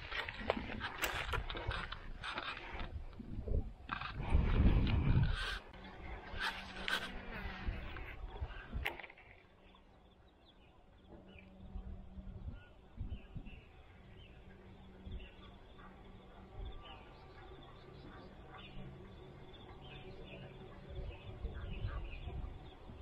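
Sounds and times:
fishing reel handling rustles: 0.0s - 2.9s.

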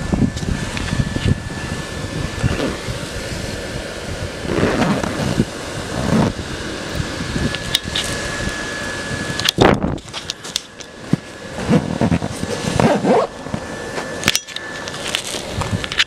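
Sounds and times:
wind buffeting microphone: 0.0s - 10.4s
electric blower whining: 0.0s - 16.0s.

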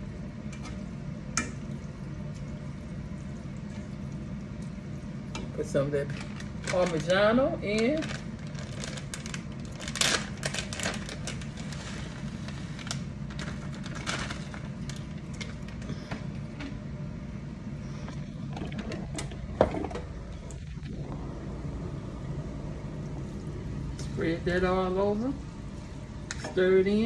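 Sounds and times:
steady low hum: 0.0s - 27.0s
plastic bag crinkling: 6.0s - 16.0s.

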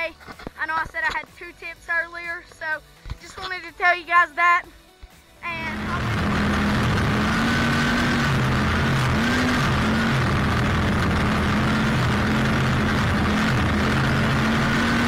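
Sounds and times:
string trimmer cutting grass: 5.5s - 15.0s.

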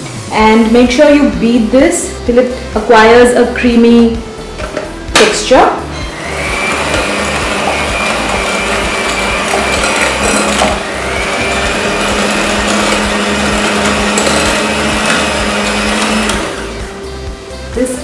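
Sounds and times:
electric hand mixer whine: 5.9s - 17.4s.

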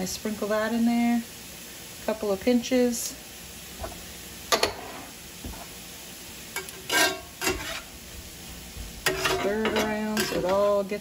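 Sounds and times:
vegetables sizzling in a skillet: 0.0s - 11.0s
metal spatula scraping: 3.8s - 5.7s, 6.6s - 8.0s, 9.0s - 10.8s.

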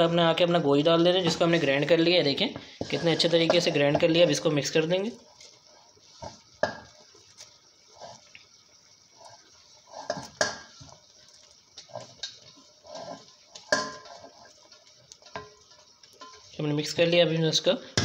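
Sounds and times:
spatula scraping steel plate: 2.8s - 3.9s, 9.2s - 10.9s.

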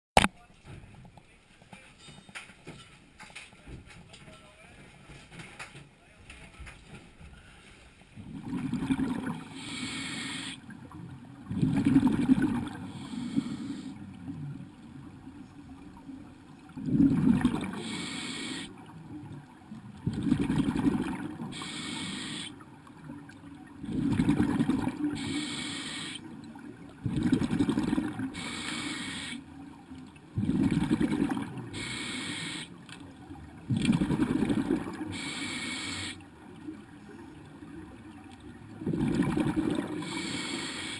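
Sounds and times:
exhaled bubbles rumbling: 8.2s - 10.0s, 10.6s - 25.4s, 26.2s - 28.4s, 29.5s - 32.0s, 33.1s - 35.4s, 36.2s - 40.5s
hissing regulator inhale: 9.5s - 10.6s, 12.8s - 14.0s, 17.7s - 18.8s, 21.5s - 22.6s, 25.1s - 26.3s, 28.3s - 29.4s, 31.7s - 32.8s, 35.1s - 36.2s, 40.0s - 40.9s.

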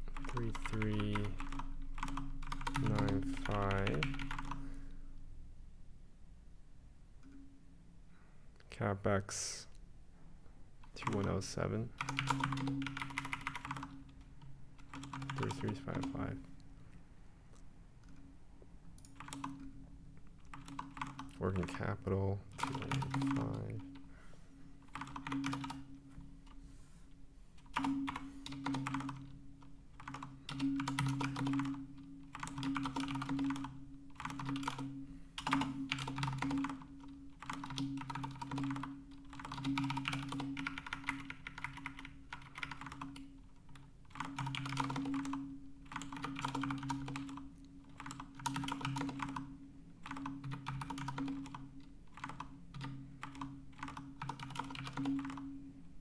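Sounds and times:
typing on a computer keyboard: 0.0s - 4.8s, 10.8s - 16.4s, 19.0s - 19.7s, 20.4s - 21.8s, 22.5s - 24.1s, 24.9s - 26.0s, 27.6s - 55.5s.

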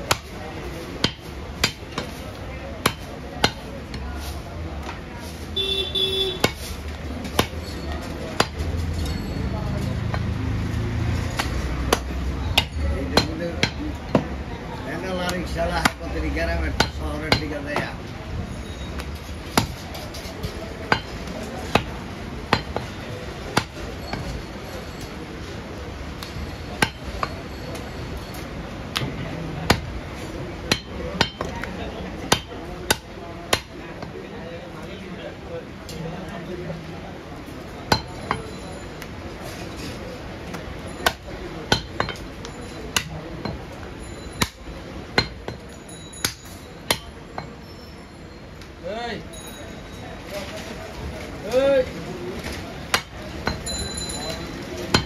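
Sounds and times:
cleaver chopping on wooden block: 1.0s - 2.2s, 2.8s - 3.7s, 11.4s - 14.3s, 19.5s - 19.8s, 20.9s - 21.9s, 22.5s - 22.9s, 26.8s - 27.4s, 29.7s - 30.0s, 30.7s - 31.7s, 32.3s - 34.1s, 37.9s - 38.4s, 40.5s - 42.2s, 45.2s - 45.6s, 52.9s - 53.6s.

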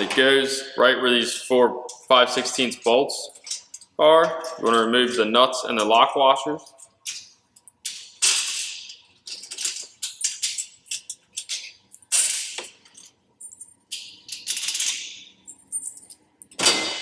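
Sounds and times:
wrench and nuts rattling on metal: 1.9s - 4.9s, 6.6s - 17.0s.

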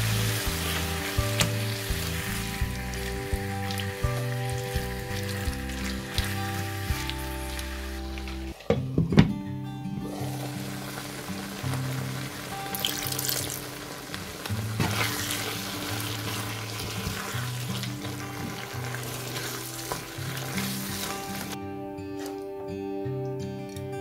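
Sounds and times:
spatula stirring: 0.0s - 8.5s, 12.7s - 21.6s
sauce sizzling in a frying pan: 0.0s - 8.7s, 10.0s - 21.6s
soft background music: 0.0s - 24.0s.

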